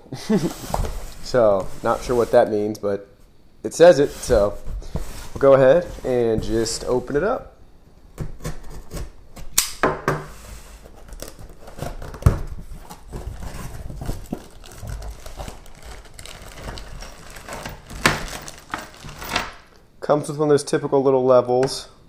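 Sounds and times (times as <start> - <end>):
plastic wrapping rustling: 10.8 - 19.8
cardboard tearing: 10.9 - 19.7.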